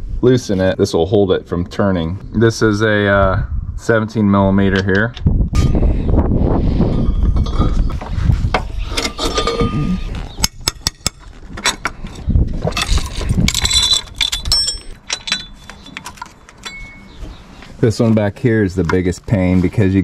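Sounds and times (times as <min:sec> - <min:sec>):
steel wrenches clinking: 0:07.0 - 0:12.0, 0:12.7 - 0:17.2.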